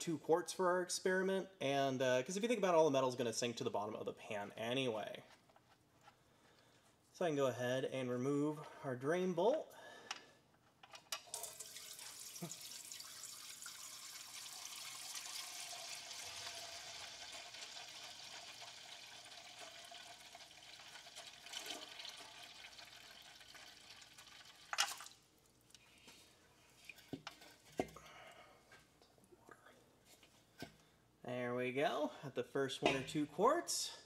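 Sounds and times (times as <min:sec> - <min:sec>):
oil draining into basin: 0:11.3 - 0:25.2.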